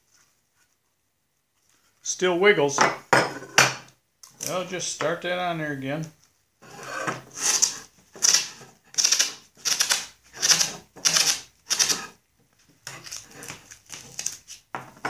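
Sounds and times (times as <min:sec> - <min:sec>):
masking tape pulled off roll: 0:07.4 - 0:12.1.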